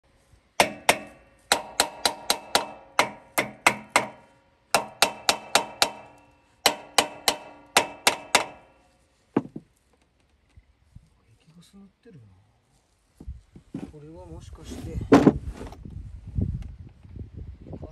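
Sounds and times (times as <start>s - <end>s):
hammer striking steel hub: 0.6s - 8.8s.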